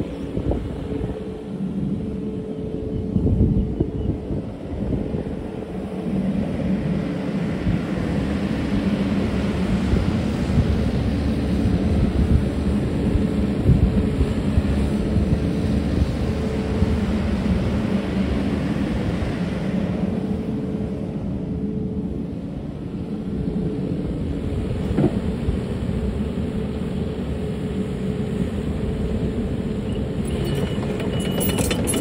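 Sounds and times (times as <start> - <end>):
excavator diesel engine running: 27.4 - 32.0.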